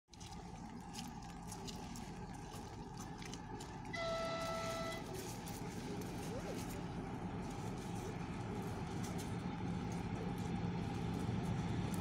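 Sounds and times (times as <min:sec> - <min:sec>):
locomotive rumble: 0:00.2 - 0:12.0
locomotive horn blast: 0:03.9 - 0:05.4.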